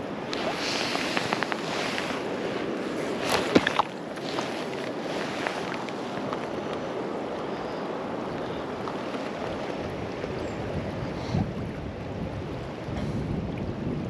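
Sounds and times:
river water flowing: 0.0s - 14.0s
wind on microphone: 7.9s - 14.0s.

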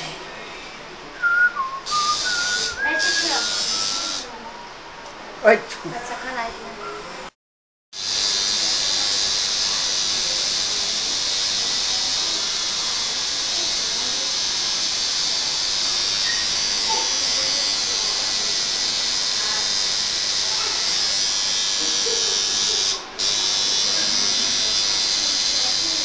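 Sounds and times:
tattoo machine buzzing: 1.8s - 4.3s, 7.9s - 26.0s.

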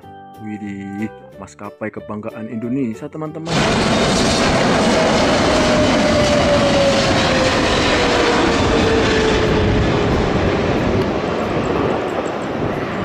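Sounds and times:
jet engines roaring overhead: 3.5s - 13.0s.

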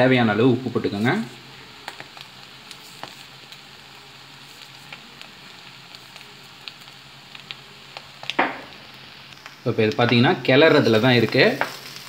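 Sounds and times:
rice sizzling in a pan: 0.0s - 12.0s.

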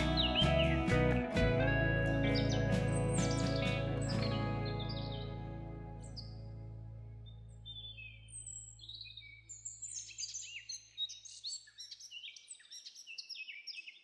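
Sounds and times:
low held music tone: 0.0s - 8.9s
songbirds chirping: 0.0s - 14.0s.

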